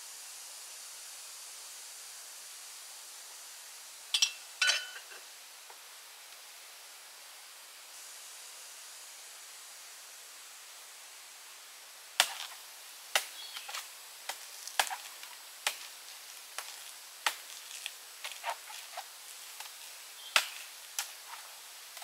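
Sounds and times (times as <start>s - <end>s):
faint steady hiss: 0.0s - 22.0s
blade chopping bamboo: 12.2s - 21.4s.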